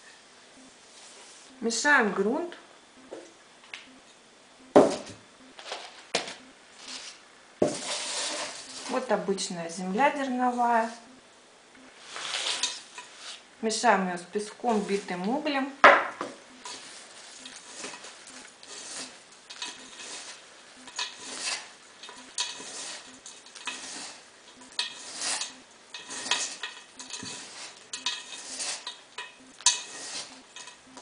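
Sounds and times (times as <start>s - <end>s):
hands mixing gritty soil: 16.6s - 31.0s.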